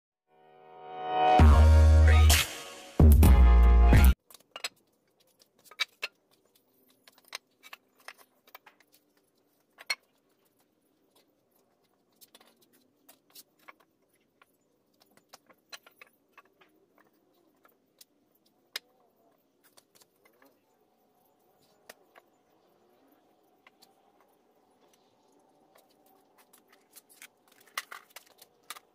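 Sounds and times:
loud intro music: 0:00.5 - 0:04.2.

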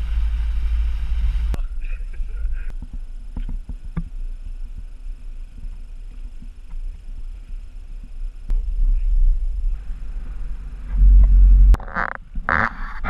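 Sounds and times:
motorboat engine idling: 0:00.0 - 0:03.3.

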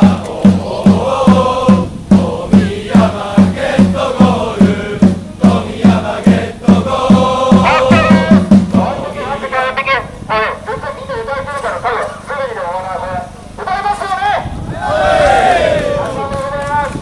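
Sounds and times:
steady drumbeat: 0:00.0 - 0:09.5
crowd singing a chant: 0:00.0 - 0:09.8.

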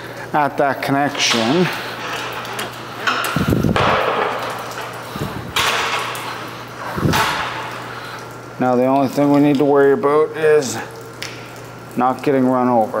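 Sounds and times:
metal cable scraping and rattling: 0:01.1 - 0:03.6.

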